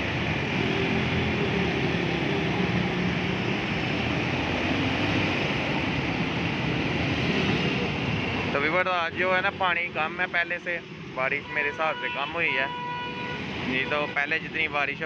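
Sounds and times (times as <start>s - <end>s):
vehicles driving through floodwater: 0.0s - 15.0s.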